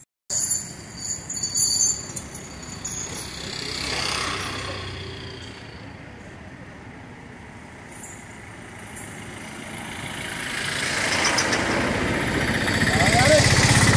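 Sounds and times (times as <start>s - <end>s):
motor vehicle noise: 0.0s - 13.9s.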